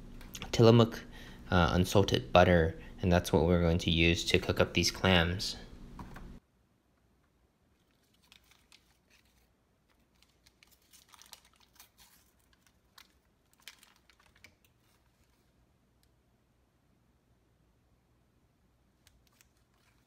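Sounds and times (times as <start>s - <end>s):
paper wrapper crinkling: 7.7s - 15.6s, 19.0s - 20.0s.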